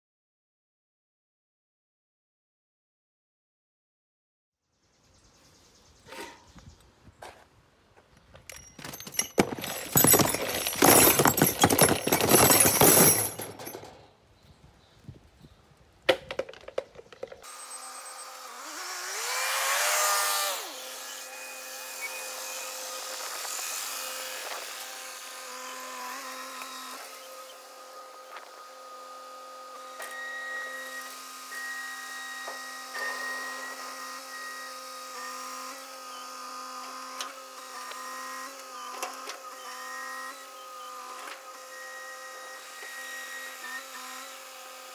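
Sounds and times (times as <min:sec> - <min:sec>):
clatter: 0:08.5 - 0:14.0
hydraulic hoist whining: 0:17.4 - 0:44.4.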